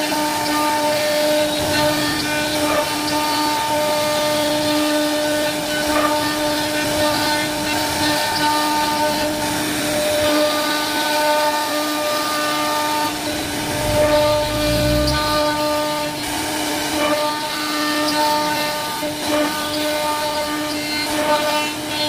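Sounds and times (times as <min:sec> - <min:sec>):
router spindle whining: 0:13.3 - 0:15.9.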